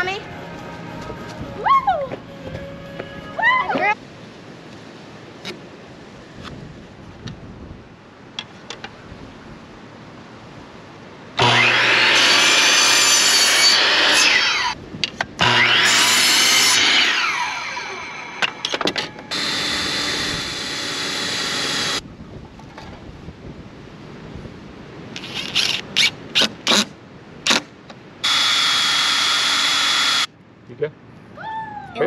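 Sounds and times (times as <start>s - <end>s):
miter saw cutting wood: 11.4s - 14.8s, 15.4s - 22.0s, 28.2s - 30.3s
cordless drill running: 19.3s - 22.0s, 28.2s - 30.3s.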